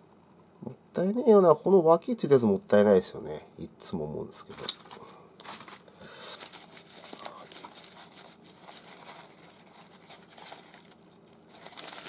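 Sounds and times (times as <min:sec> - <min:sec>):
rustling: 0:04.5 - 0:12.0.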